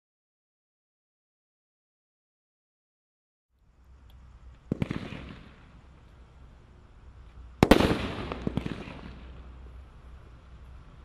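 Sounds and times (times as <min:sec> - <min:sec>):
fireworks bangs echoing: 0:04.7 - 0:05.9, 0:07.6 - 0:09.7.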